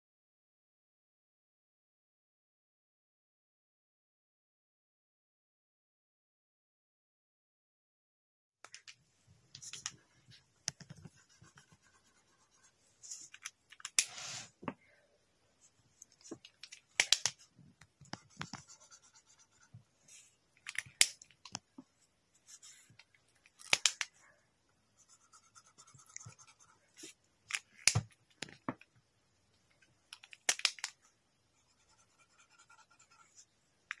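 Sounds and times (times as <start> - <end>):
sharp clicks: 16.5 - 17.4, 23.6 - 24.1, 30.1 - 31.0.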